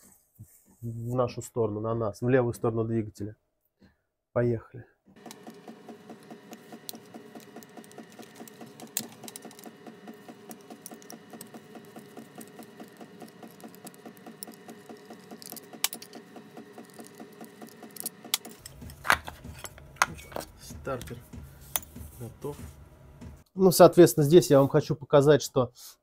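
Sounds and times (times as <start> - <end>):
small power tool motor pulsing: 5.2 - 19.5.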